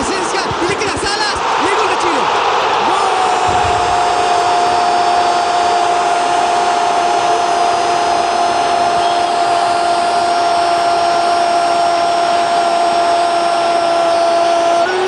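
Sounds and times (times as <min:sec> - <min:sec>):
stadium crowd noise: 0:00.0 - 0:15.0.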